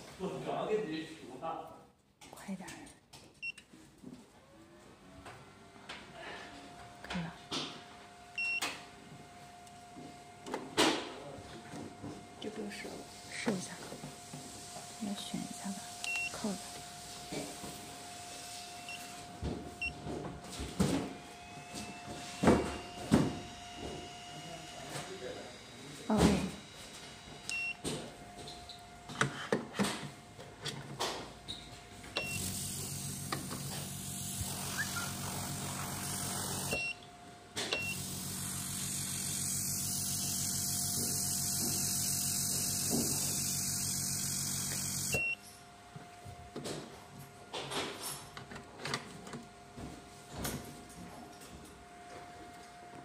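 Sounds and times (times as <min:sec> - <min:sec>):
pump humming and hissing: 0:05.6 - 0:30.3, 0:31.0 - 0:46.6.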